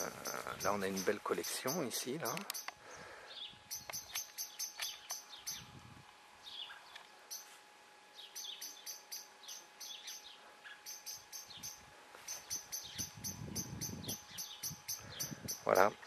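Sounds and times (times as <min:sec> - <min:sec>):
birds chipping: 0:00.0 - 0:16.0
bird whistled notes: 0:10.9 - 0:15.8.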